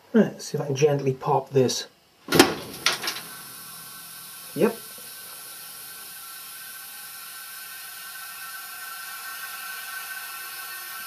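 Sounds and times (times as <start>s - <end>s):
air hissing into tube: 2.6s - 11.0s.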